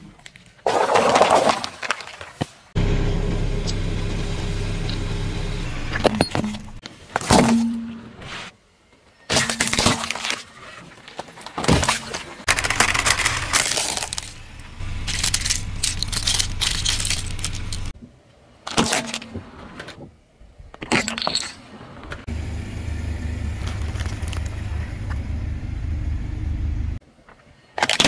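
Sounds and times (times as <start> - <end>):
ceramic cracking under car tyres: 12.5 - 17.9, 23.6 - 25.2
items crunching under wheel: 12.5 - 17.9, 23.5 - 24.9.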